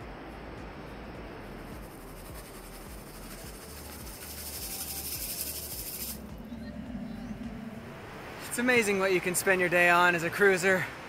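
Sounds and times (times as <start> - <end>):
wet sand swishing in sifter: 1.8 - 6.3.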